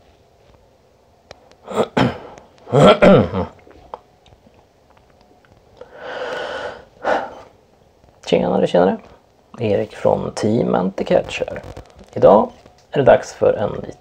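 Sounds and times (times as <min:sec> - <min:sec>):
man's throaty vocal bursts: 0:01.6 - 0:03.6
man breathing out: 0:05.8 - 0:07.5.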